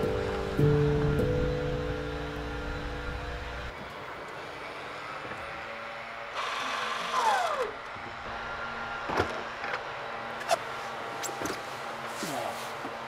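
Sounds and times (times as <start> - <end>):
small electric motor whirring: 3.8 - 11.4.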